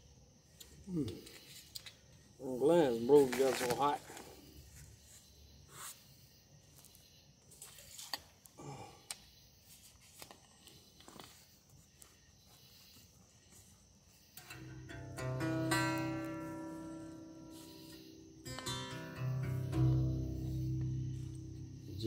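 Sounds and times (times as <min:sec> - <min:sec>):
faint clicks and rustles: 0:06.7 - 0:14.6.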